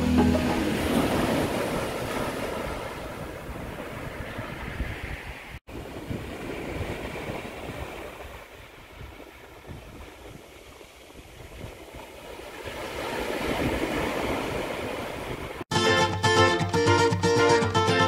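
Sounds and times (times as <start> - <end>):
waves breaking on shingle beach: 0.6 - 15.7
wind buffeting microphone: 0.7 - 15.6.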